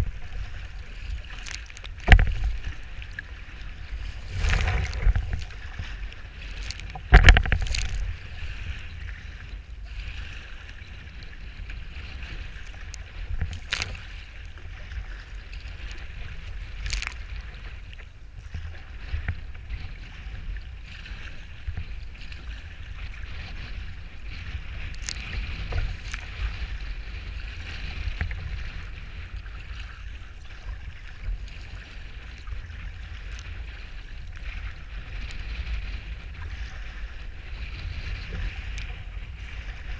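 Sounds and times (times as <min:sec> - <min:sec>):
water slapping: 0:00.0 - 0:39.9
water sloshing and splashing: 0:00.0 - 0:39.9
wind on microphone: 0:00.0 - 0:39.9.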